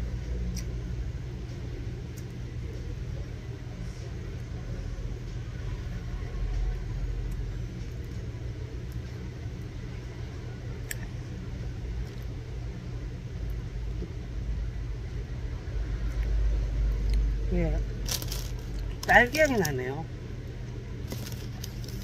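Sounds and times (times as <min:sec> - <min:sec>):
low rumble and hum: 0:00.0 - 0:22.0.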